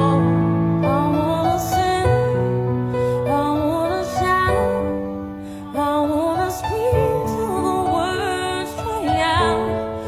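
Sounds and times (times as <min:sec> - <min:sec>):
person singing: 0:00.0 - 0:10.0.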